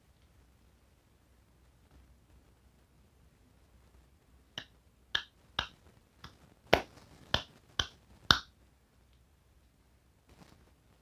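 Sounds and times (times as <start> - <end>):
fingers snapping: 4.6 - 8.5.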